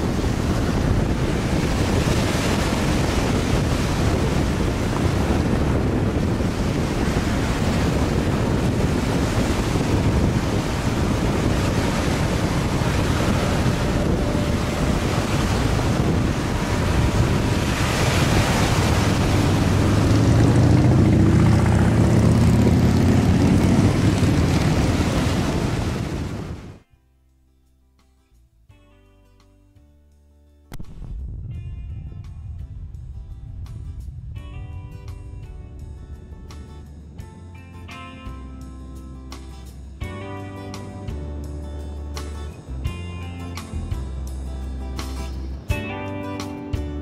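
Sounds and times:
waves washing: 0.0 - 26.8
wind buffeting microphone: 0.0 - 26.8, 30.8 - 39.0
low engine drone: 2.6 - 26.6, 30.8 - 37.6.

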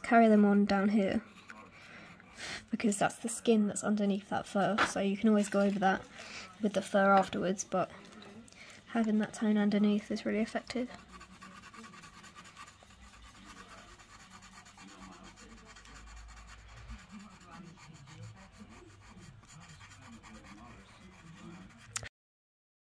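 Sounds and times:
pencil scratching on paper: 0.0 - 1.8, 8.9 - 22.0.

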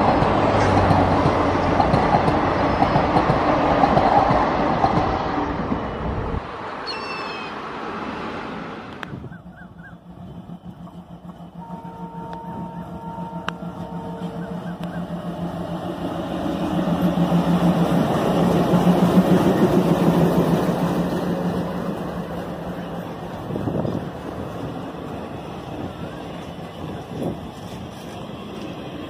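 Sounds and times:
train wheels clattering on rails: 0.0 - 5.7
diesel locomotive engine drone: 0.0 - 29.0.

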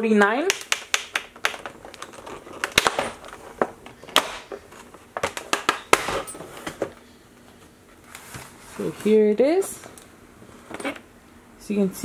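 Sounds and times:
plastic packaging crackling: 0.5 - 6.9.

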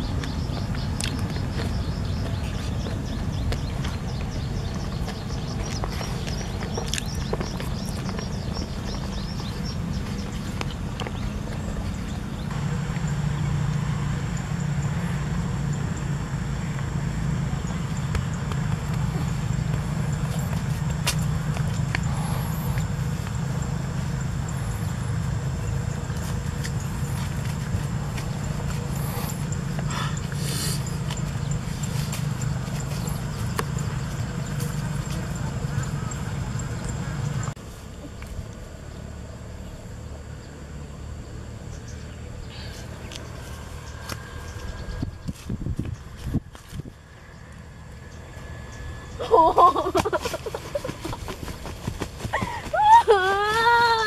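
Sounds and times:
wind buffeting microphone: 44.0 - 47.2.

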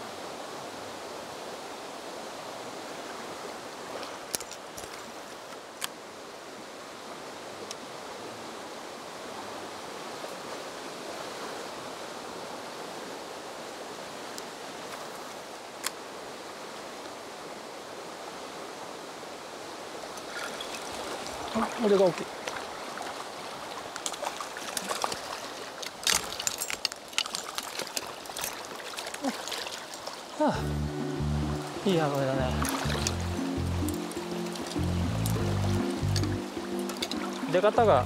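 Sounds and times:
mountain stream flowing: 0.0 - 38.0.

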